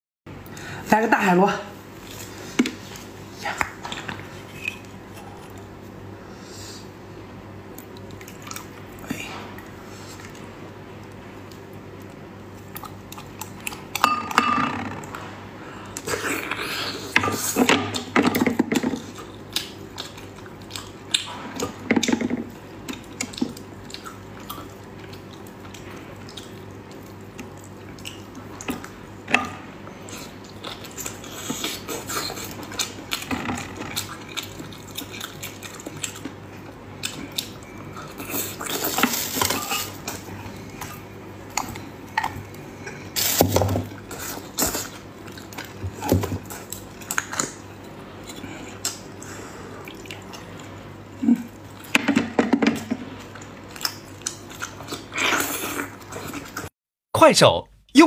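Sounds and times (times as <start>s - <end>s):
wet squelching and chewing: 7.7s - 14.0s, 19.0s - 21.9s, 22.5s - 29.1s, 30.0s - 43.3s, 44.0s - 51.9s, 53.2s - 56.7s.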